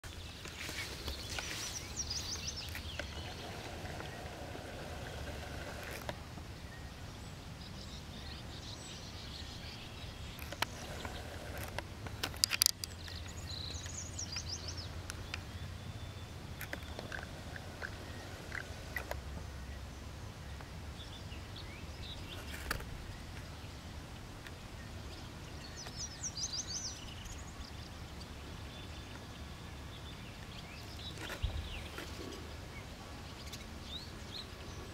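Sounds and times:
low steady rumble: 0.0 - 12.2, 12.9 - 34.9
small birds chirping: 0.0 - 34.9
sharp clicks: 10.3 - 15.5.

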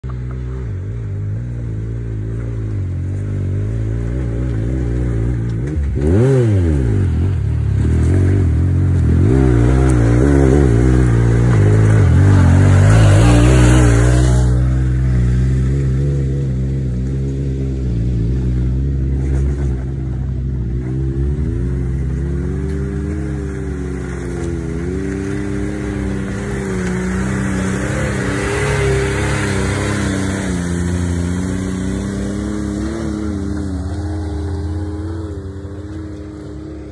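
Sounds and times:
off-road vehicle engine revving: 0.0 - 36.9.

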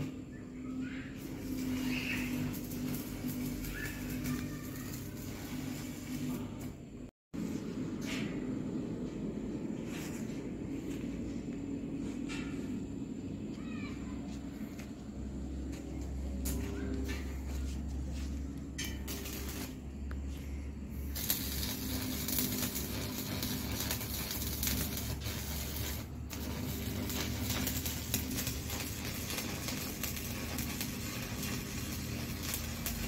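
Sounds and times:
arc welding crackling hiss: 0.0 - 7.6, 14.6 - 33.0
low hum: 0.0 - 32.9.

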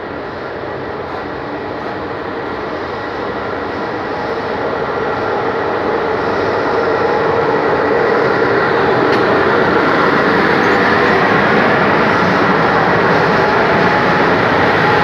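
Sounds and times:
electric locomotive hum: 0.0 - 15.0
train wheels rolling: 0.1 - 15.0.

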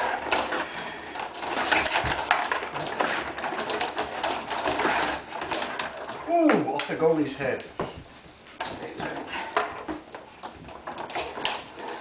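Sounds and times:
rods sliding and twisting: 0.0 - 6.6, 8.3 - 12.0
plastic pieces clacking: 0.0 - 7.0.

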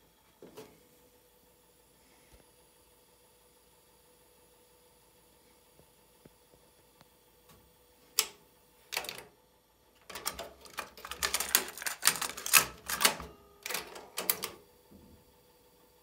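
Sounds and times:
plastic cassette clicks and rattles: 8.9 - 9.3, 10.0 - 14.6.

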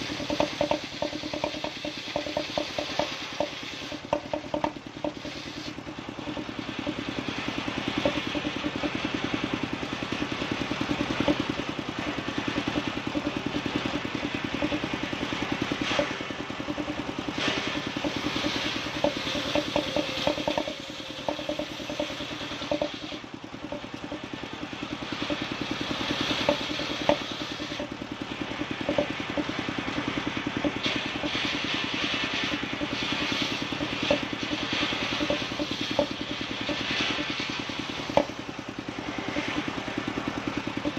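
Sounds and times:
saw blade cutting wood: 0.0 - 9.1, 12.6 - 24.2, 25.1 - 27.9, 30.6 - 38.4
sawmill engine running: 0.0 - 40.9.

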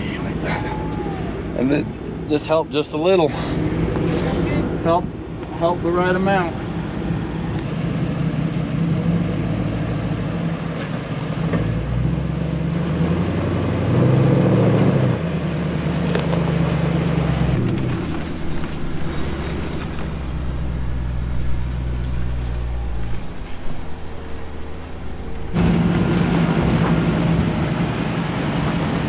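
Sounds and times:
vehicle engines under load: 15.4 - 29.0.

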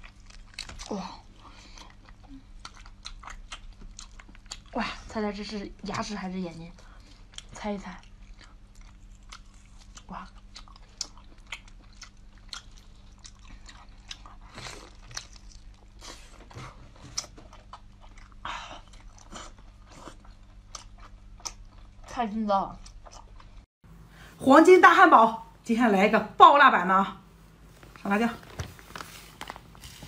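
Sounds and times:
chewing mouth sounds: 1.7 - 4.7, 6.8 - 22.1.

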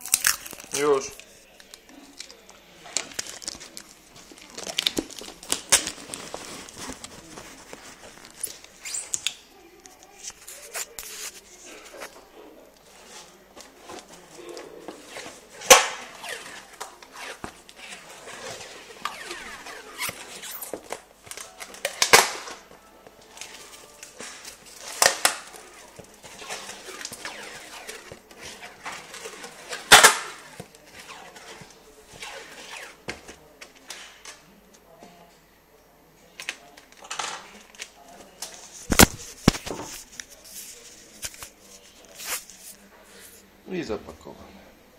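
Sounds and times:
packing tape pulled off roll: 0.0 - 11.4, 13.9 - 22.7, 23.3 - 34.2
cardboard box rustling: 3.2 - 8.7.

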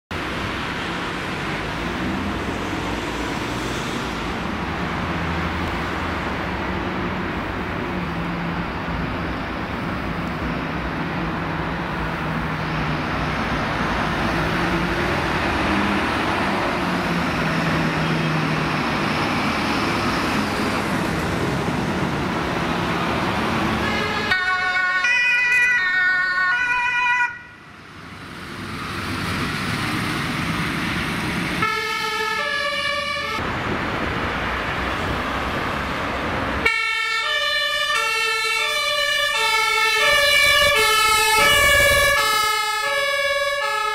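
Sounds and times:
diesel engines with road noise: 0.1 - 43.9
two-tone emergency sirens: 23.7 - 27.8, 31.6 - 33.5, 36.6 - 43.9.

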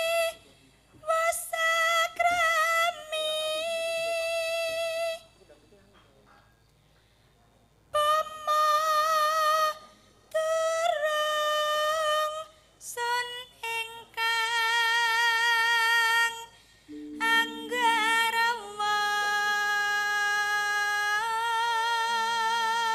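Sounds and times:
singer breathing: 6.8 - 7.4, 16.5 - 17.1
woman singing with vibrato: 10.4 - 22.9.

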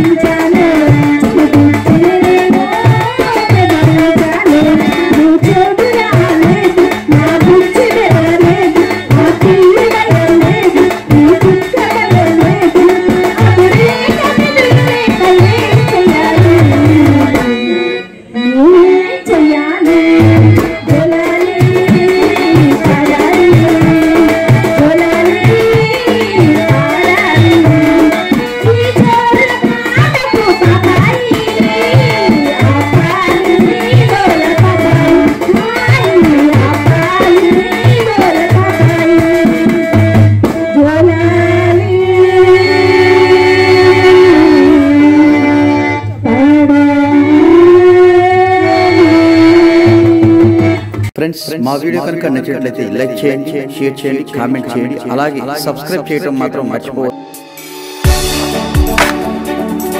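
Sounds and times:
hand drum beat: 0.0 - 17.6, 19.9 - 42.6, 58.0 - 59.9
woman singing through microphone: 0.0 - 51.0.

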